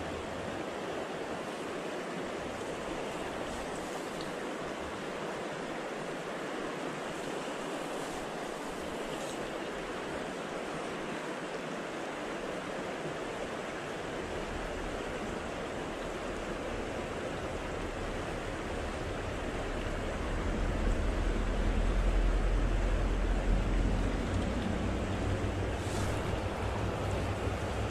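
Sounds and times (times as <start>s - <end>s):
river water flowing: 0.0s - 27.9s
low rumble: 18.7s - 27.9s.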